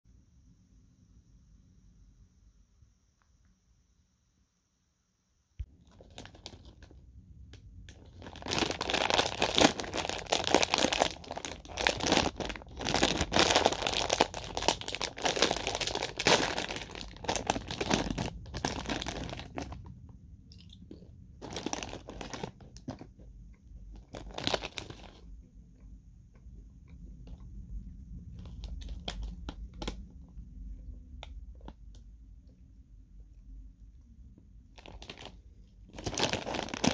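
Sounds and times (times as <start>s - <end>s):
plastic snack bag crinkling: 5.7s - 25.3s, 28.2s - 32.0s, 34.7s - 36.9s.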